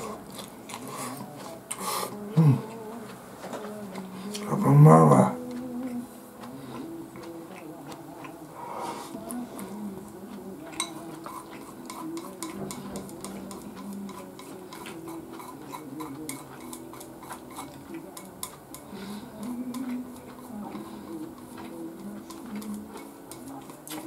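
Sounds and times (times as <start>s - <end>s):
chewing with mouth clicks: 0.0s - 4.5s, 5.3s - 24.0s
faint low hum: 0.0s - 24.0s
chopsticks clicking on dishes: 10.3s - 24.0s.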